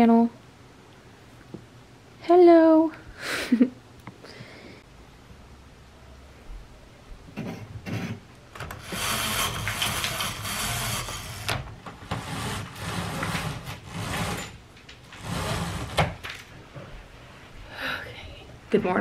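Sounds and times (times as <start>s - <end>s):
curtains scraping along rail: 8.7s - 16.5s.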